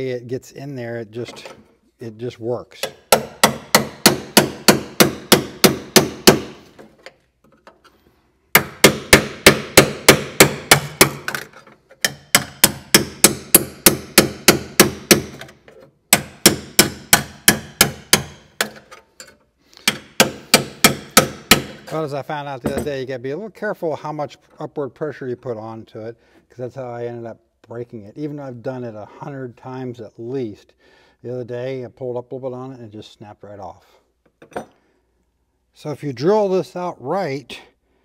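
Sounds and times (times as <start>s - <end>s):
hammer striking metal chisel: 2.8s - 6.9s, 8.5s - 22.0s.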